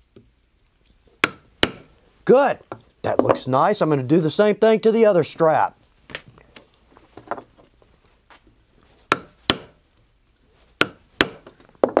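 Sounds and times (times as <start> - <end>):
mallet striking rivet setter: 1.2 - 1.9, 9.1 - 9.8, 10.8 - 12.0.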